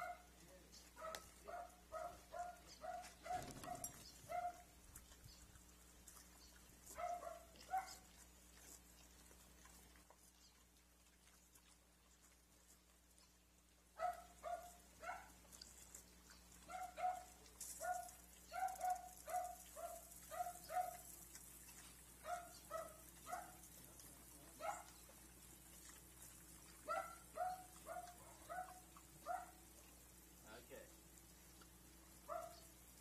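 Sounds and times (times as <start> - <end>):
dog barking: 0.0 - 0.3, 1.0 - 4.7, 6.9 - 8.2, 14.0 - 15.4, 16.6 - 21.1, 22.2 - 23.7, 24.6 - 25.0, 26.8 - 29.6, 32.2 - 32.7.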